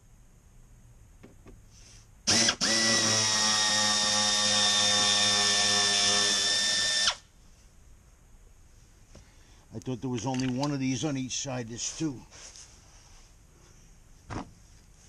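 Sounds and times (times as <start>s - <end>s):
power tool whining: 2.3s - 7.3s.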